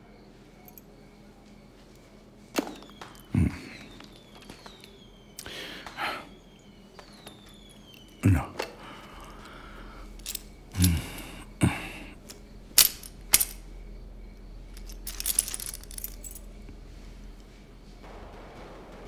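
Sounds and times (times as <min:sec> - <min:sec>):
coins clinking in cloth pouch: 0:02.7 - 0:06.0, 0:07.0 - 0:13.6, 0:14.7 - 0:16.6.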